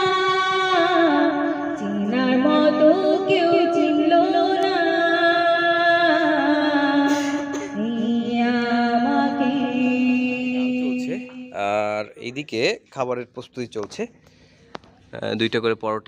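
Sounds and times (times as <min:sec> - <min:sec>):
woman singing slow melody: 0:00.0 - 0:11.4.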